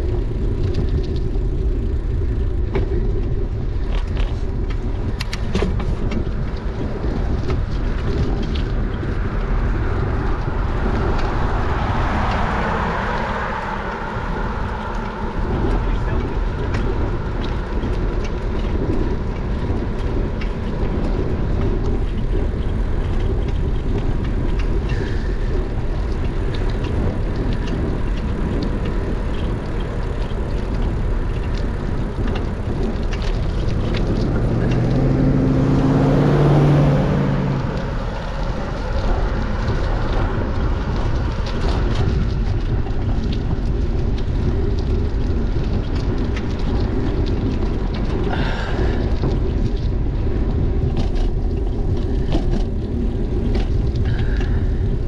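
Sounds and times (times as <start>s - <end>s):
wind rumble on microphone: 0.0s - 55.0s
car passing by: 8.6s - 18.3s, 33.9s - 42.4s.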